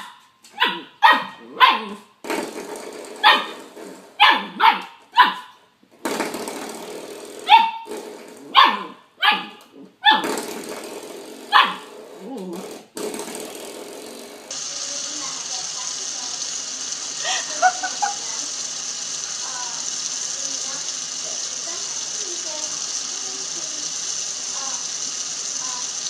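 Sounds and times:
small dog barking: 0.0s - 2.0s, 3.2s - 3.6s, 4.2s - 5.5s, 7.5s - 7.9s, 8.5s - 10.3s, 11.5s - 11.9s.

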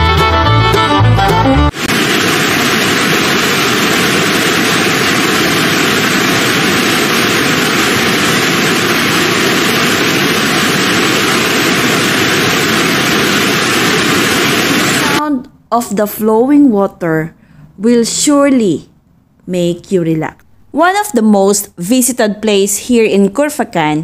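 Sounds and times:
waterfall rushing: 1.7s - 15.2s.

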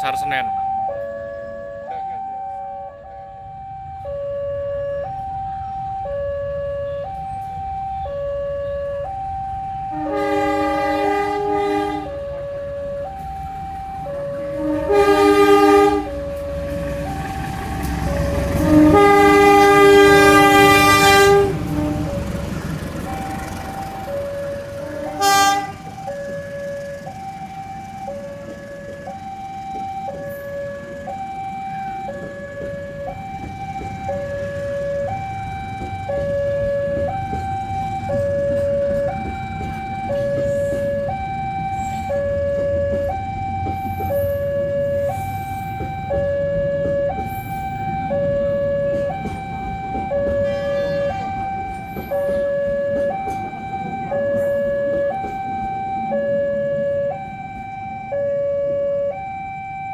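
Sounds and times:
two-tone crossing alarm: 0.0s - 59.9s
train horn blast: 9.9s - 12.2s, 14.5s - 16.2s, 18.5s - 22.3s, 24.8s - 26.0s, 50.3s - 51.4s.

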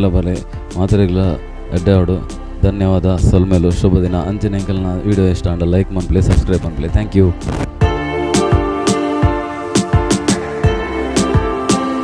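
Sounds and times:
held chords: 0.0s - 12.0s
sharp beat hits: 7.4s - 11.9s.

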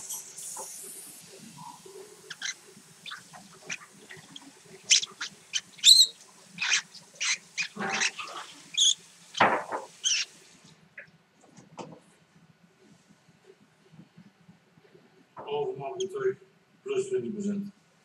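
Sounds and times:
bird chirping and squeaking: 2.2s - 10.4s.

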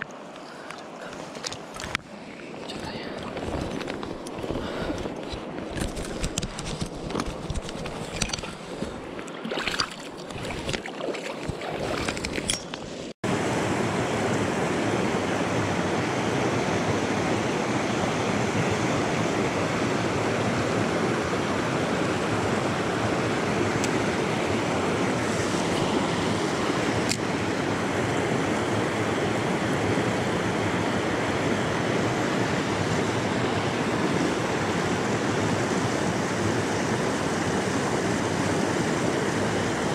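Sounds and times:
light splashing: 7.9s - 12.6s.

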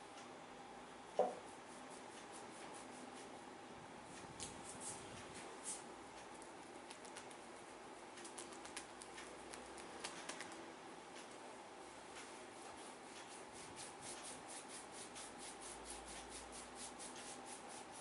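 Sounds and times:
hands tapping on scalp: 6.9s - 7.4s, 8.2s - 10.6s.

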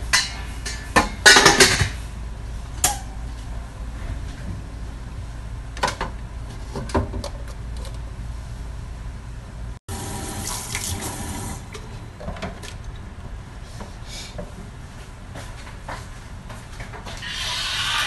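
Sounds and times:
tap water running into sink: 10.1s - 11.6s.

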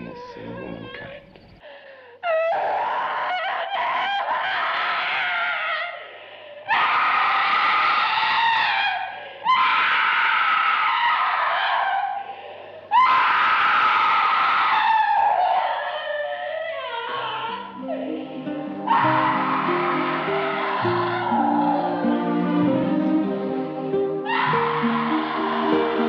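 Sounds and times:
woman screaming: 12.9s - 22.9s, 24.2s - 26.0s.

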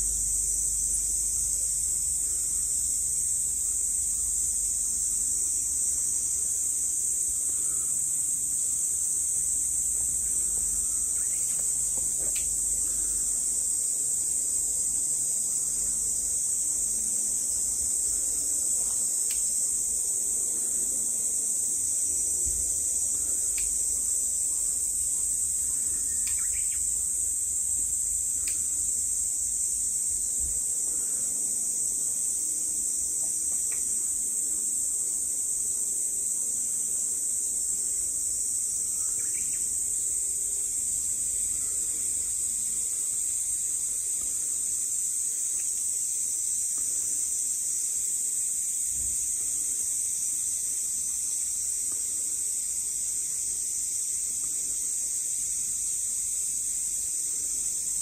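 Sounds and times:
high-pitched insect chorus: 0.0s - 58.0s
faint ticks: 10.5s - 12.6s, 18.8s - 19.6s, 23.2s - 24.1s, 26.2s - 26.8s, 28.3s - 28.8s, 33.2s - 34.0s.

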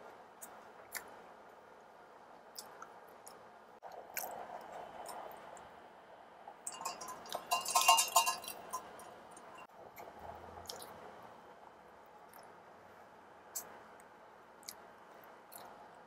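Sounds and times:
quiet chewing: 0.4s - 1.2s, 2.5s - 5.7s, 9.6s - 11.0s, 12.2s - 12.6s, 13.5s - 16.0s
metal mug clinking and rattling: 6.7s - 9.7s.

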